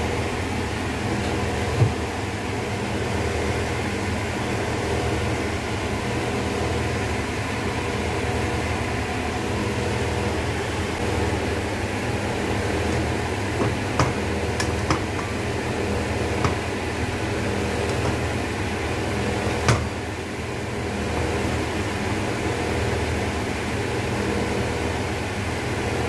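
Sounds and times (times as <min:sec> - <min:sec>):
kitchen fan whirring: 0:00.0 - 0:26.0.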